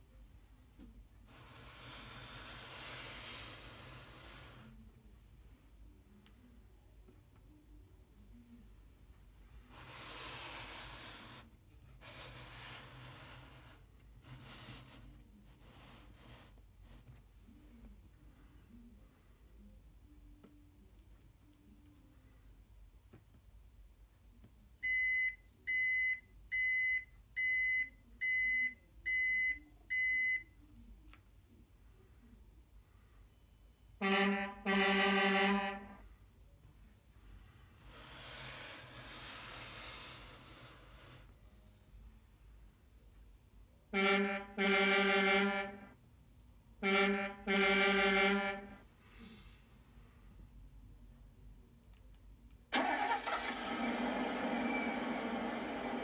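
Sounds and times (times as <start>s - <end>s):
truck air horn blasts: 34.0s - 36.0s, 44.0s - 45.9s, 46.8s - 48.8s.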